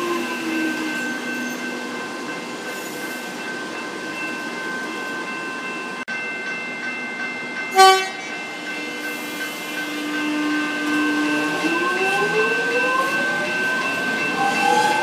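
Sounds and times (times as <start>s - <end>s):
electric train whine and rolling: 0.0s - 15.0s
train horn blast: 7.8s - 8.3s, 9.9s - 12.4s.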